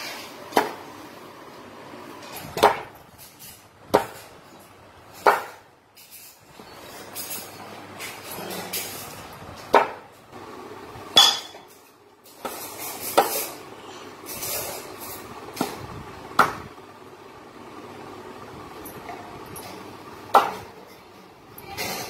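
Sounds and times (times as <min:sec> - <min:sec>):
cleaver chopping on wooden board: 0:05.2 - 0:05.6.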